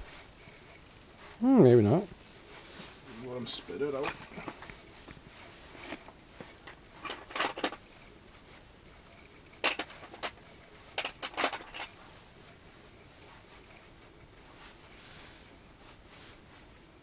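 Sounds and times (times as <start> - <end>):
light clicks and clinks: 3.1 - 13.0.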